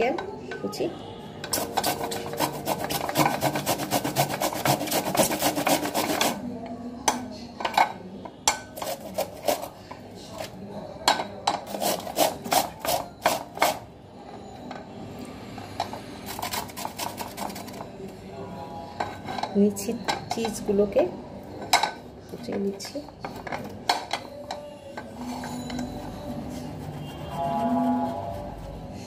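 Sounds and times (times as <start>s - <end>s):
pepper grated on metal grater: 1.4s - 6.4s, 8.8s - 9.8s, 11.6s - 13.8s, 16.2s - 17.8s.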